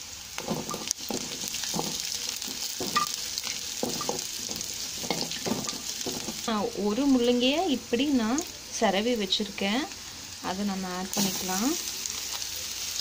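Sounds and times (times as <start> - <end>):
food sizzling in hot oil: 0.0 - 13.0
spatula scraping pan: 0.4 - 6.5.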